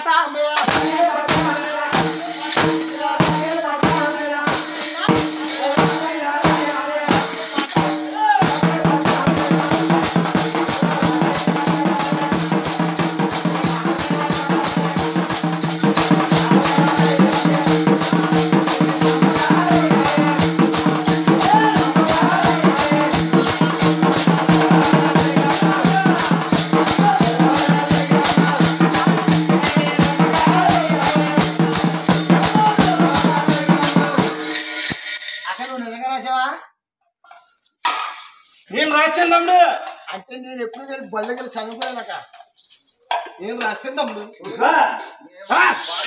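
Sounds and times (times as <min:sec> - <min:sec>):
drum beating: 0:00.6 - 0:35.7
brass hand cymbals clashing: 0:00.6 - 0:35.8.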